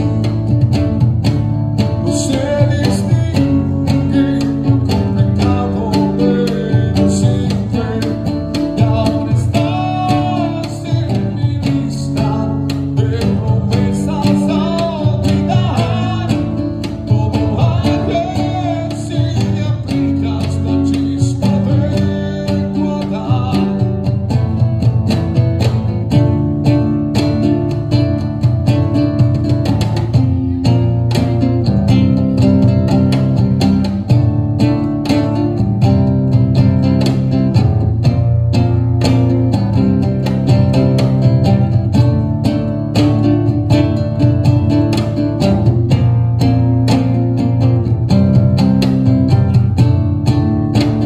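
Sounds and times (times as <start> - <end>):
man singing: 0.0 - 0.9, 1.8 - 24.8
strummed nylon-string guitar: 0.0 - 51.0.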